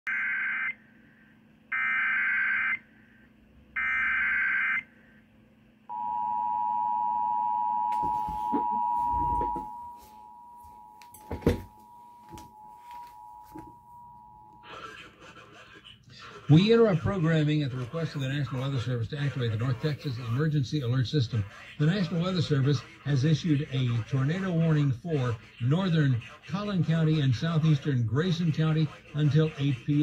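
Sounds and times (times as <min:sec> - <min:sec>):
two-tone attention signal: 0:05.9 - 0:14.7.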